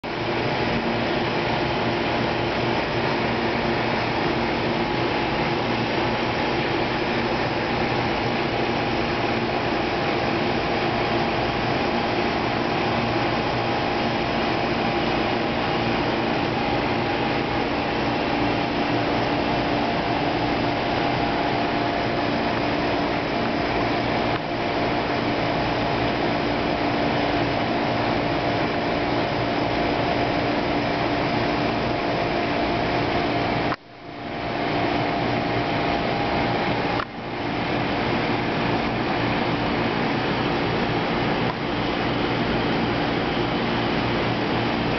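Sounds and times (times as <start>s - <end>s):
aquarium pumps whirring: 0.0s - 44.9s.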